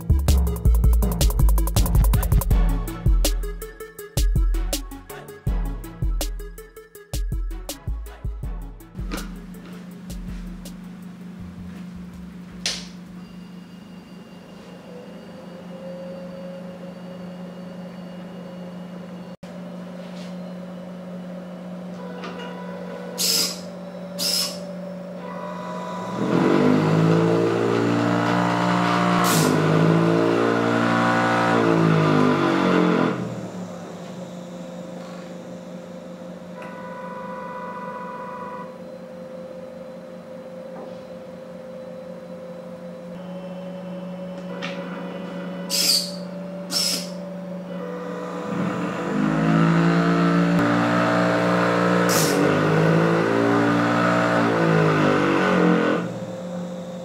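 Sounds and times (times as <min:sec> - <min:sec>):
motor hum: 0:20.4 - 0:57.0
stepper motor whining: 0:23.0 - 0:40.9, 0:41.6 - 0:57.0.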